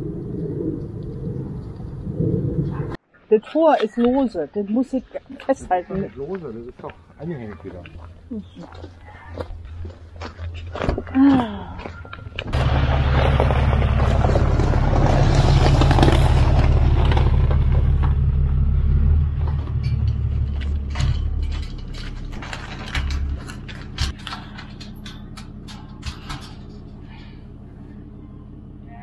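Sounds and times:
vehicle engine humming: 0.0s - 3.0s, 5.6s - 29.0s
knocks and clanks: 9.6s - 27.5s.

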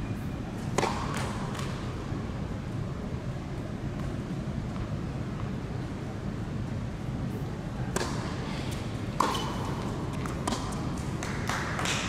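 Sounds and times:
tennis ball being struck: 0.8s - 1.7s, 7.9s - 8.4s, 9.2s - 10.8s.

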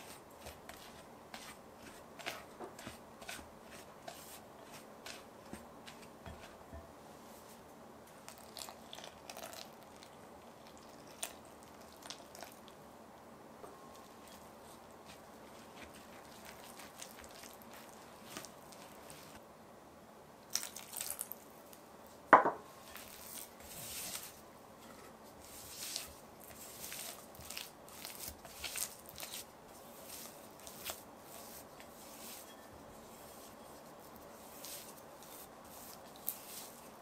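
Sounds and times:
spatula scraping bowl: 0.0s - 6.8s, 22.9s - 36.9s
spatula stirring sticky dough: 0.0s - 7.6s, 13.9s - 19.4s, 22.7s - 37.0s.

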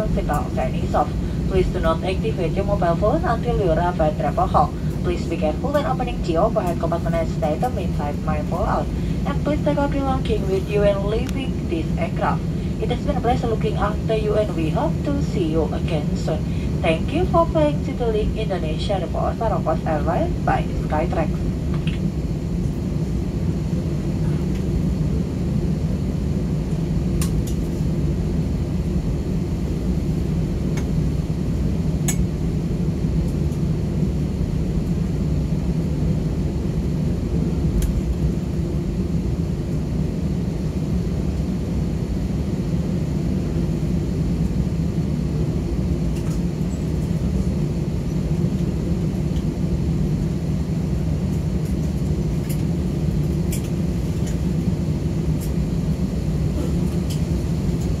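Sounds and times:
aircraft cabin rumble: 0.0s - 58.0s
faint steady hum: 0.0s - 58.0s.

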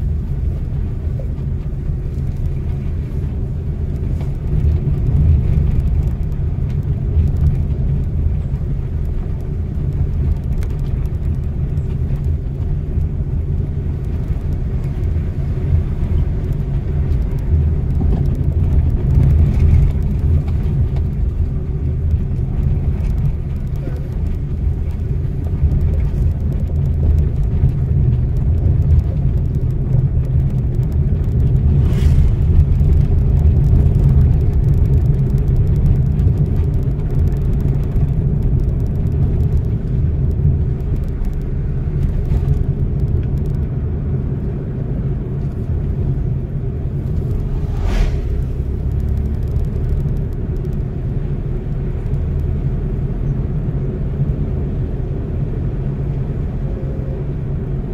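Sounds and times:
car cabin rumble: 0.0s - 57.9s.

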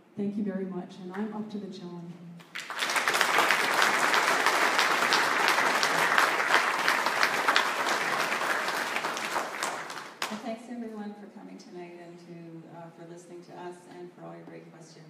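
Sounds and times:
audience applauding: 2.4s - 10.4s.

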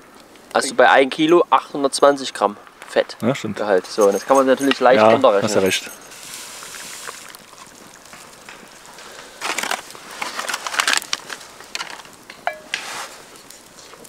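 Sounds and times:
scraping and rustling of cooking gear: 3.9s - 14.0s.

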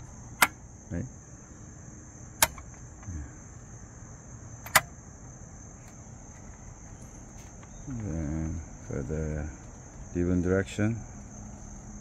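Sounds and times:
typewriter mechanism clicks: 4.6s - 4.9s.

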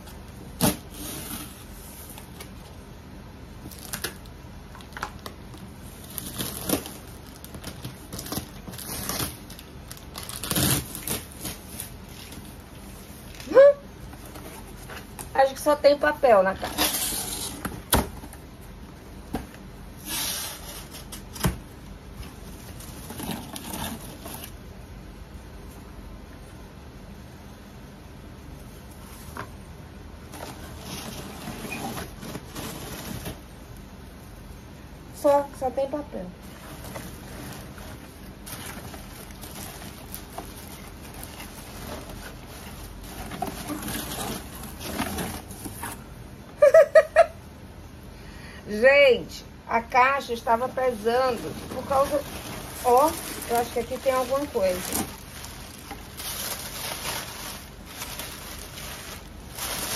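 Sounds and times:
packing paper rustling and crinkling: 3.5s - 18.4s, 19.2s - 24.6s, 30.2s - 33.6s, 36.4s - 46.1s, 50.2s - 59.9s.

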